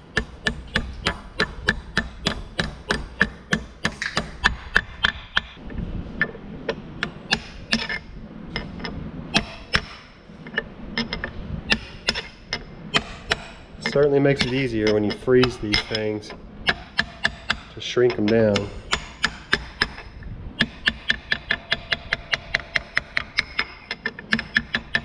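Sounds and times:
hammer blows on metal: 0:11.7 - 0:23.4.

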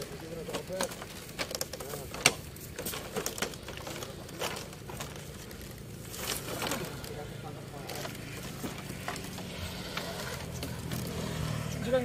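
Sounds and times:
footsteps: 0:00.0 - 0:12.0
wood creaking: 0:00.0 - 0:12.0.

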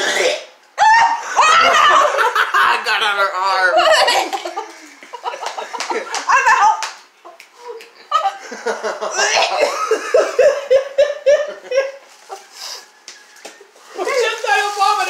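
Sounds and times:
people laughing: 0:00.8 - 0:03.0, 0:03.6 - 0:06.7, 0:08.0 - 0:14.4.

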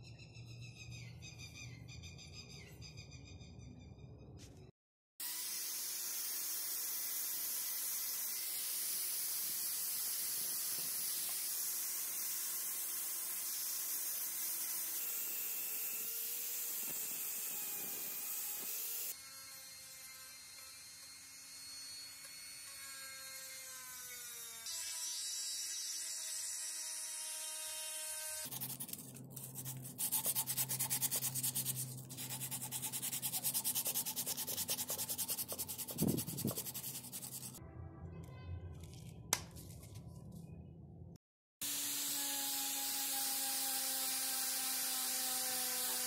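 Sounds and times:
small electric drill: 0:05.2 - 0:29.0, 0:41.6 - 0:46.0
angle grinder grinding metal: 0:41.6 - 0:46.0.

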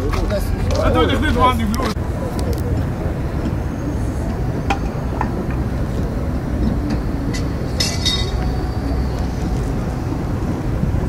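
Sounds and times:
metallic clinking: 0:06.8 - 0:08.6.

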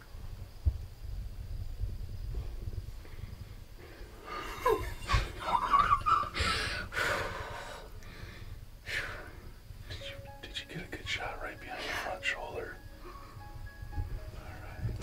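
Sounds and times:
heavy breathing and gasps: 0:06.4 - 0:09.5.

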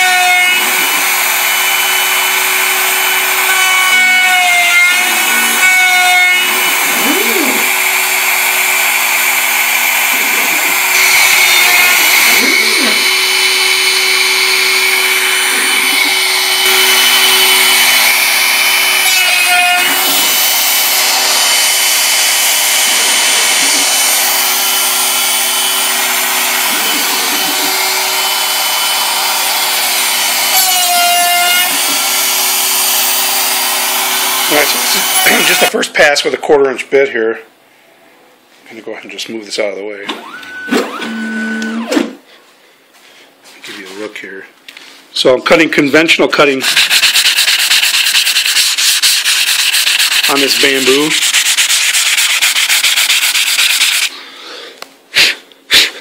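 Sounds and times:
bit cutting wood: 0:00.0 - 0:35.7, 0:46.5 - 0:54.2
router motor whine: 0:00.0 - 0:35.7, 0:40.1 - 0:42.2.

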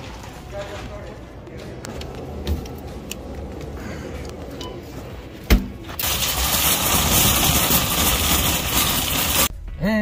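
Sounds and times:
store background noise: 0:00.0 - 0:09.5.

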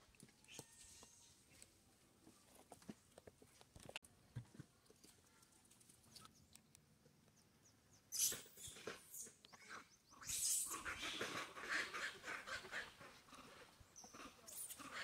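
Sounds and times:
faint clicks and rustles: 0:00.0 - 0:07.4.

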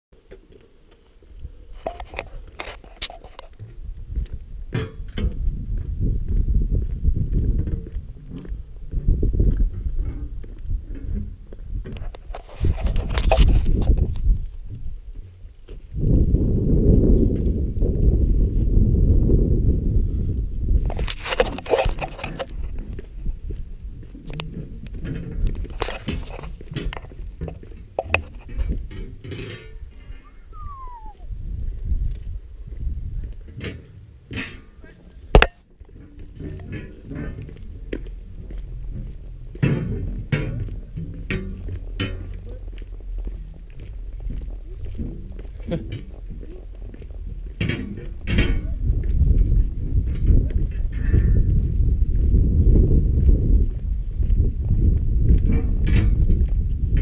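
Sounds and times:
wind on microphone: 0:01.2 - 0:57.0
bicycle rolling over cobblestones: 0:35.7 - 0:57.0
bike rattling and clinking: 0:47.6 - 0:51.6, 0:55.2 - 0:57.0.

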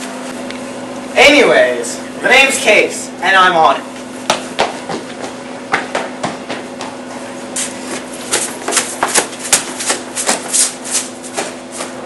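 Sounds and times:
sharp taps and knocks: 0:04.3 - 0:07.0, 0:08.3 - 0:10.6.

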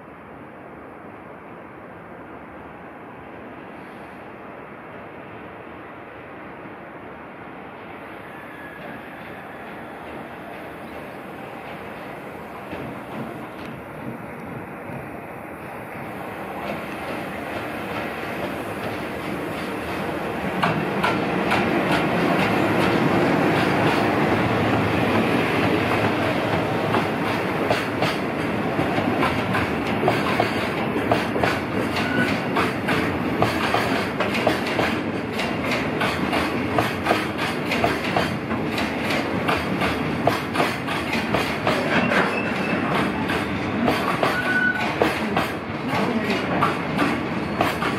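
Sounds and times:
freight train rumbling past: 0:00.0 - 0:47.9
wheels clicking over rail joints: 0:16.0 - 0:47.9.

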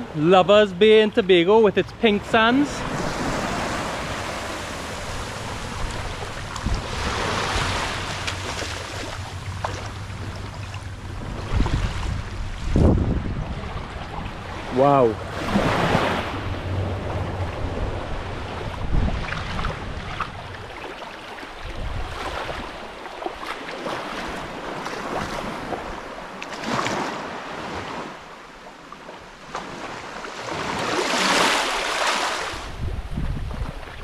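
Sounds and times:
wind gusting on microphone: 0:00.0 - 0:20.8, 0:21.5 - 0:22.9, 0:32.4 - 0:34.0
sea waves breaking: 0:00.0 - 0:34.0.

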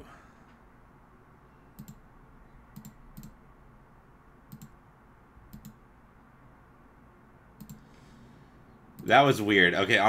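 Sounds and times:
faint room hiss: 0:00.0 - 0:10.0.

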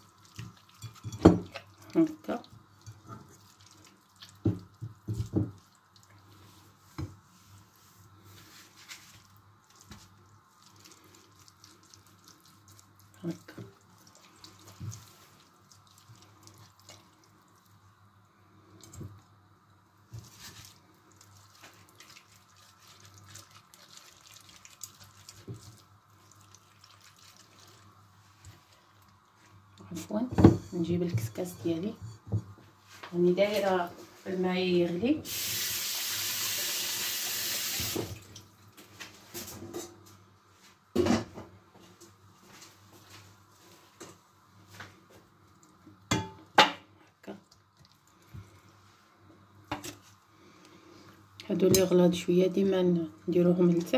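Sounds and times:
wet squelches of kneading: 0:00.0 - 0:35.7, 0:47.0 - 0:53.9.

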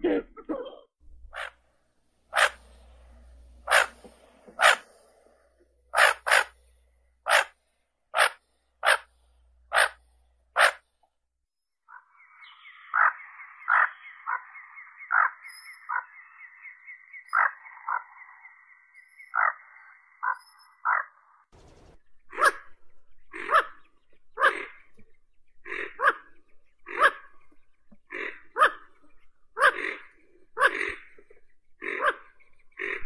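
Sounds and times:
duck giving harsh calls: 0:01.3 - 0:01.6, 0:02.3 - 0:02.7, 0:03.6 - 0:04.9, 0:05.9 - 0:06.6, 0:07.3 - 0:07.5, 0:08.1 - 0:09.1, 0:09.7 - 0:10.0, 0:10.6 - 0:10.8.

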